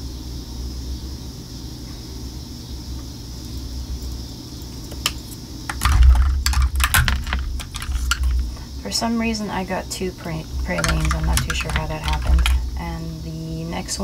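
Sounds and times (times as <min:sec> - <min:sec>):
heavier thuds: 0:05.7 - 0:08.8.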